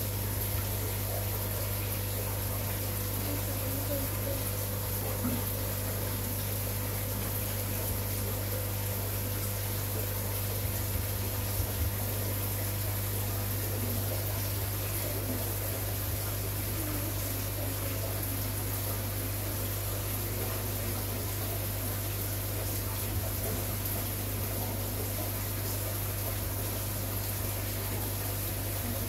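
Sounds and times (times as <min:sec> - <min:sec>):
aquarium pump hum: 0:00.0 - 0:29.0.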